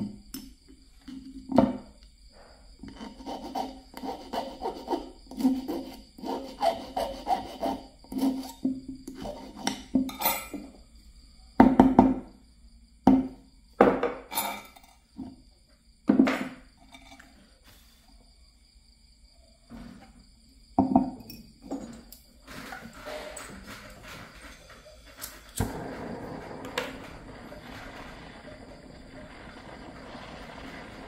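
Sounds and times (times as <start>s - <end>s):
hand file rasping on wire: 2.9s - 8.6s.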